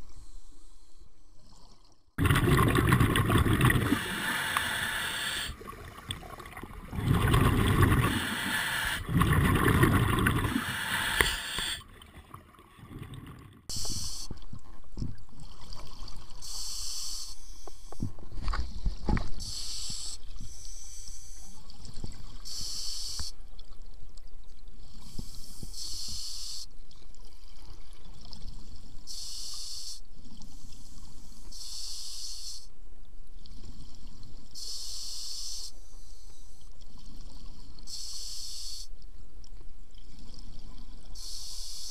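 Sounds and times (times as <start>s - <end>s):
scuba regulator breathing underwater: 2.2s - 5.6s, 7.0s - 11.8s
gurgling exhaled bubbles: 2.2s - 11.8s
high hissing bursts: 3.9s - 5.6s, 8.0s - 9.1s, 10.4s - 11.8s.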